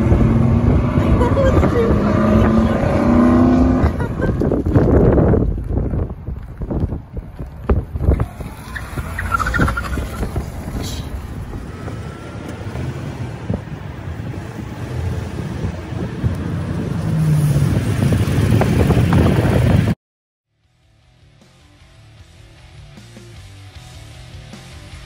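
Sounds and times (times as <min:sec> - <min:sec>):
cars driving at speed: 0:00.0 - 0:19.9.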